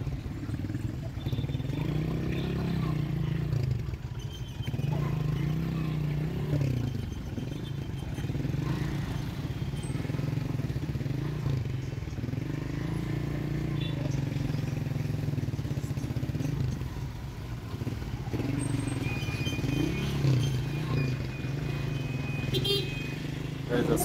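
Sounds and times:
nearby engine revving: 0.0 - 4.0, 4.6 - 24.0
busy street traffic: 0.0 - 24.0.

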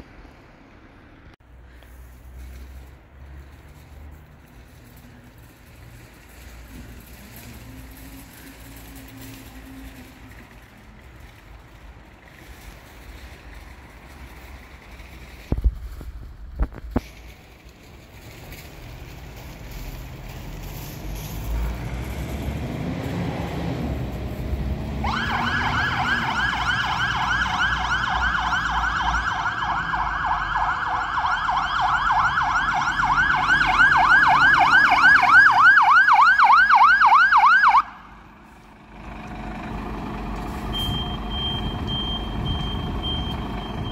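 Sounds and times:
fire engine siren wailing: 4.6 - 11.4, 21.8 - 43.9
diesel engine running: 38.0 - 43.9.

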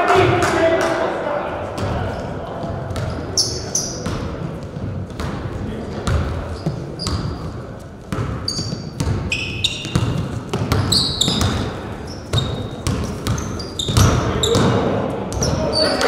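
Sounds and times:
basketball bouncing on gym floor: 1.8 - 15.6
sneaker squeaks: 2.9 - 4.4, 6.0 - 16.0.

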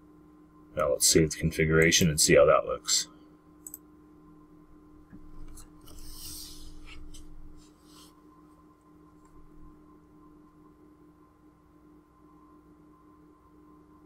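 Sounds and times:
low electrical hum: 0.0 - 14.0
computer mouse clicks: 3.6 - 3.8
soft hissing: 5.8 - 8.2.

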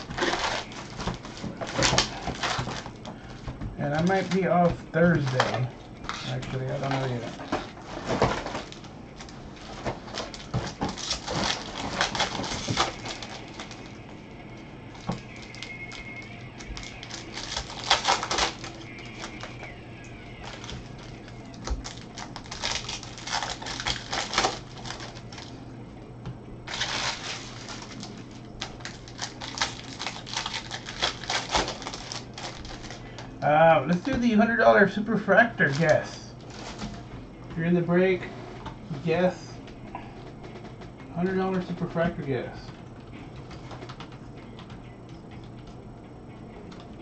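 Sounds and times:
foil wrappers crinkling and tearing: 0.0 - 14.1, 14.9 - 25.6, 26.6 - 37.0.

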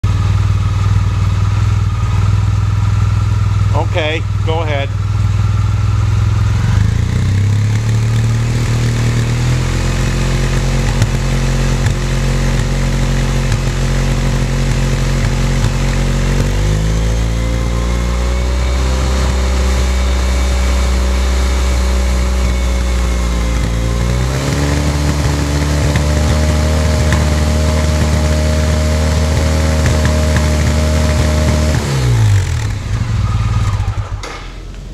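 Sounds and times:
scooter engine running: 0.0 - 34.9.

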